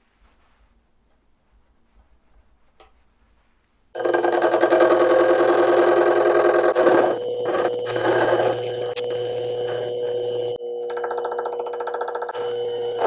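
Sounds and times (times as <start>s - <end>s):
metal lathe motor whining: 4.0s - 13.0s.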